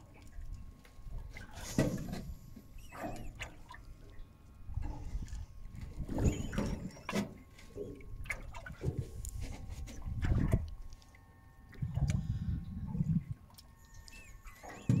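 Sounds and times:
water lapping against boat hull: 0:00.0 - 0:15.0
wind buffeting microphone: 0:08.2 - 0:10.8, 0:11.8 - 0:13.4.

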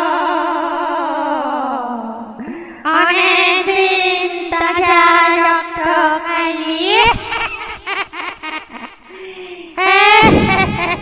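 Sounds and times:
ghostly singing wail: 0:00.0 - 0:07.7.

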